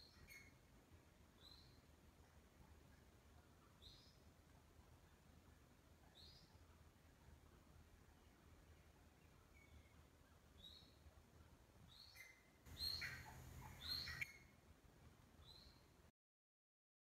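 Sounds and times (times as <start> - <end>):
francolin calling: 12.0 - 14.5.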